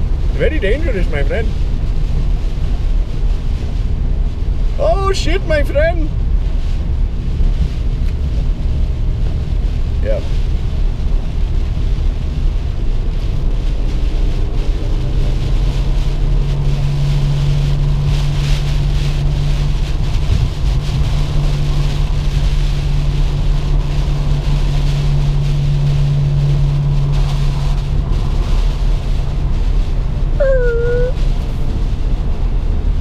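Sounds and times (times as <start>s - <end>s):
car engine and tyres drone: 0.0s - 33.0s
rain on windshield: 0.0s - 33.0s.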